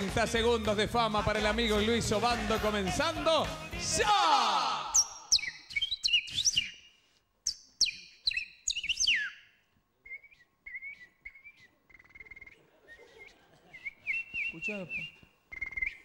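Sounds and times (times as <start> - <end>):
man whistling bird calls: 4.9 - 16.0.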